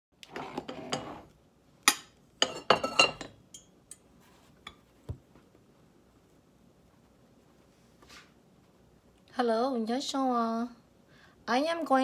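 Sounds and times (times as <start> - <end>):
pots clinking on stove grates: 1.9 - 3.4.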